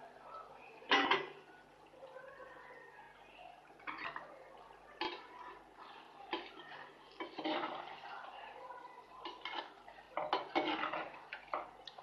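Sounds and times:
spoon stirring thick gravy: 0.0 - 12.0.

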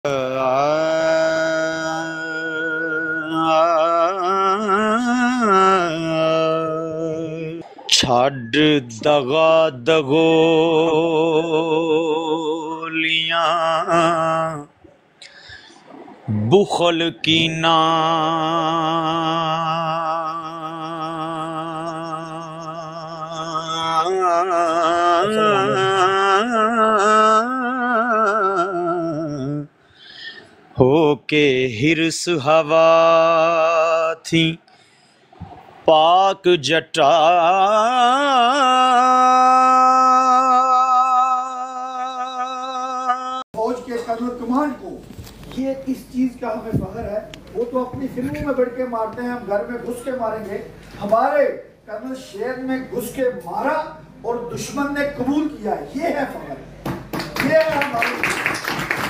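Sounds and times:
man singing long held notes: 0.0 - 14.7, 16.4 - 29.8, 35.9 - 43.5.

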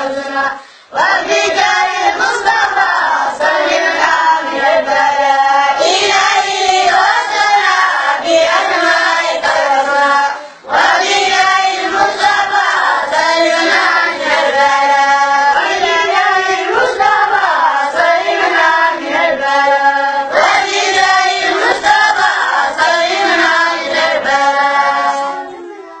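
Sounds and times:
boys singing together: 0.0 - 26.0.

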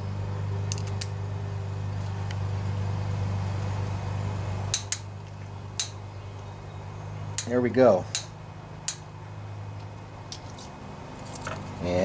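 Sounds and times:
steady low hum: 0.0 - 12.0
sharp metal tool clicks: 4.7 - 5.1, 5.8 - 6.0, 7.4 - 8.3.

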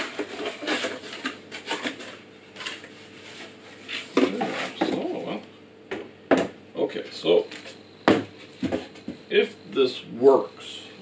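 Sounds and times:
cardboard rustling and scraping: 0.0 - 5.2.

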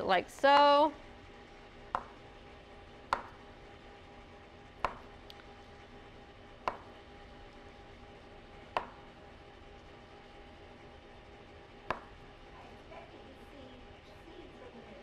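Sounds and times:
knife tapping cutting board: 3.1 - 3.4, 4.8 - 5.1, 6.6 - 6.9, 11.9 - 12.1.

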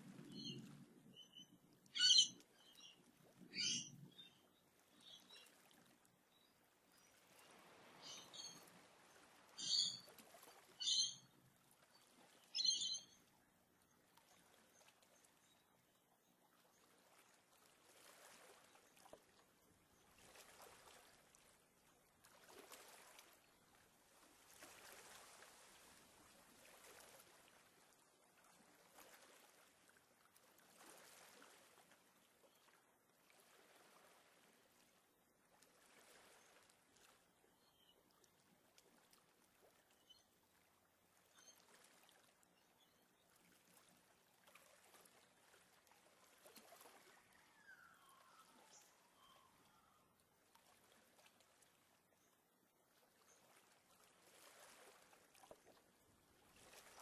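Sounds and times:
faint water wash: 0.0 - 12.7, 16.7 - 35.0
high-pitched bird calls: 2.0 - 2.4, 3.6 - 3.9, 9.6 - 10.0.

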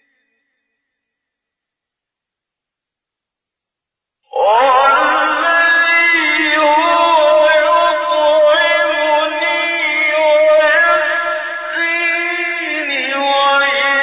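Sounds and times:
man reciting melodically: 4.3 - 14.0.

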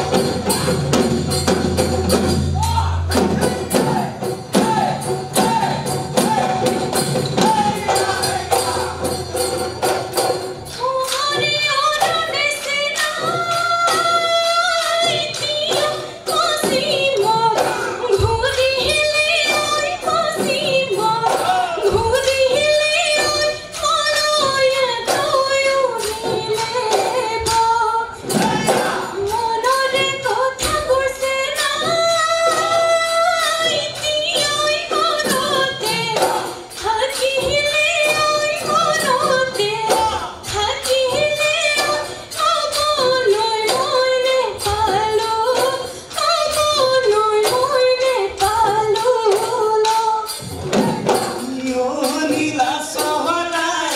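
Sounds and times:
drums beating a fast rhythm: 0.0 - 53.9
women singing in unison: 10.7 - 53.9.

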